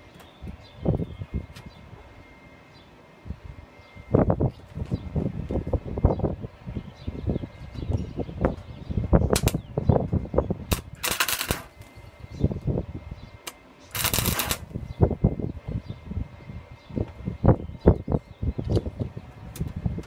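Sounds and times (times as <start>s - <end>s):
welding arc crackling: 9.3s - 9.6s, 10.7s - 12.0s, 13.4s - 14.9s.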